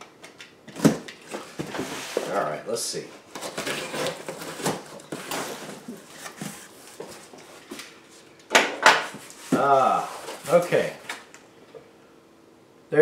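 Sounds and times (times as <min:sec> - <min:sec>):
cardboard flaps scraping and rustling: 0:00.8 - 0:02.4, 0:03.3 - 0:07.8.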